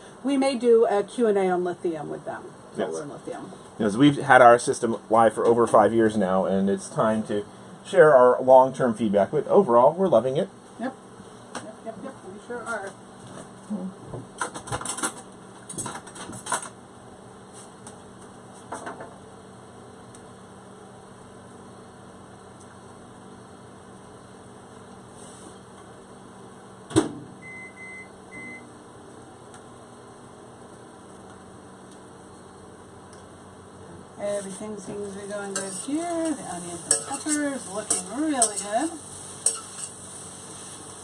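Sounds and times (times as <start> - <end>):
steady low hum: 0.0 - 41.0
appliance electronic beeps: 27.4 - 28.7
utensils and pans clattering: 35.4 - 40.0.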